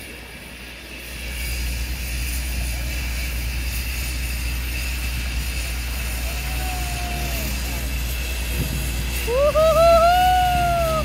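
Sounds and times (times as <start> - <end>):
turboprop engine idling: 0.0 - 11.0.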